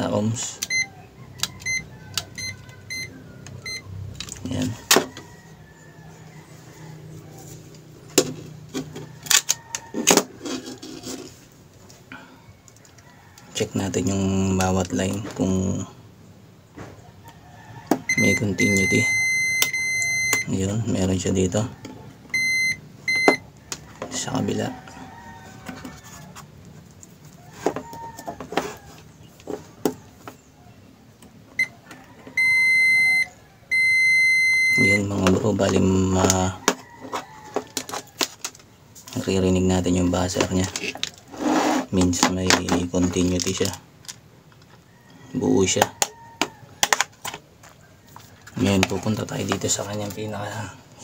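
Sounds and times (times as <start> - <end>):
multimeter beep: 0.6 - 0.9, 1.5 - 3.9, 18.1 - 20.5, 22.3 - 23.5, 32.4 - 35.1.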